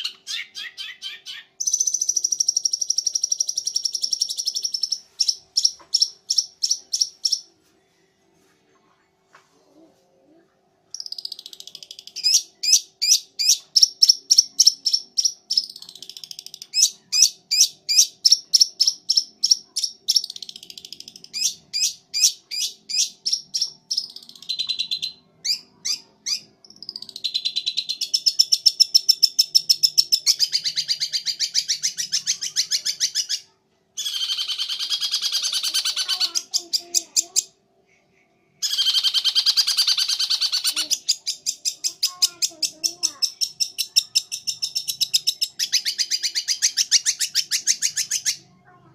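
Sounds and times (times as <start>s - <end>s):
bird singing sharp trills: 38.6s - 48.4s.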